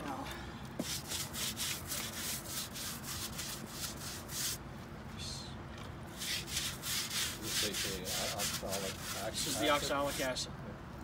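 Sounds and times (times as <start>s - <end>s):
scrub brush scrubbing wet wood: 0.8s - 4.6s, 6.2s - 10.4s.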